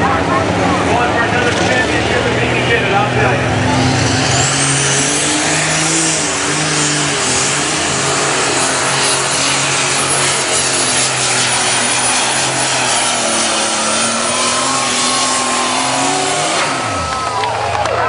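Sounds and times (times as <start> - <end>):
diesel engine running flat out: 0.0 - 18.0
turbocharger whistle: 8.9 - 17.9.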